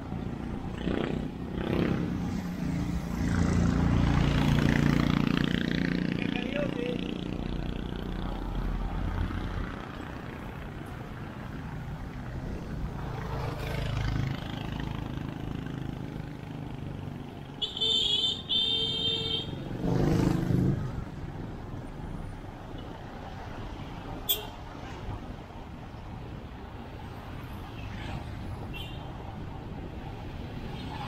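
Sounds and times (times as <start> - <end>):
road and wind noise: 0.0 - 31.0
vehicles passing: 0.0 - 31.0.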